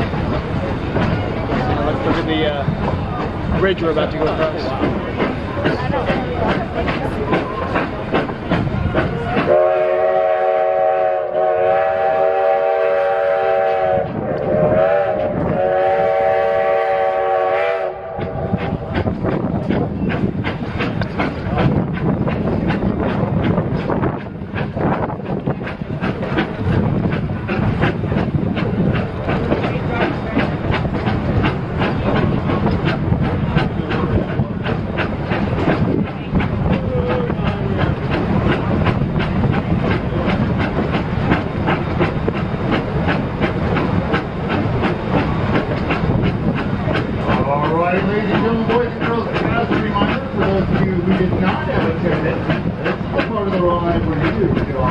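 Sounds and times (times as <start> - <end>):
rail clatter of wheels: 0.0 - 54.9
train rumbling over bridge: 0.0 - 54.9
steam whistle chord blasts: 9.5 - 18.2.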